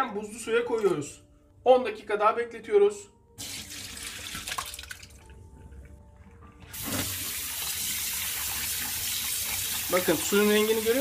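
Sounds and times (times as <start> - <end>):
water pouring into a colander: 3.4 - 5.3, 6.8 - 11.0
tap running water: 3.4 - 5.4, 6.7 - 11.0.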